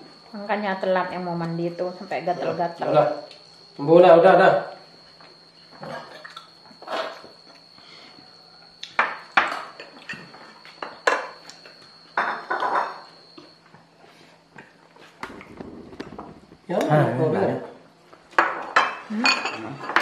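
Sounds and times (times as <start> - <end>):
dishes and cutlery clinking: 9.0 - 13.1, 18.3 - 20.0.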